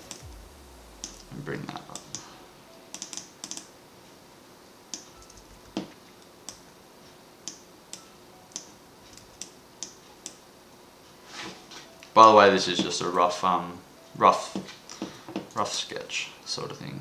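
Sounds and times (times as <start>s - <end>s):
keyboard keys clicking: 2.9s - 3.7s, 4.9s - 6.6s.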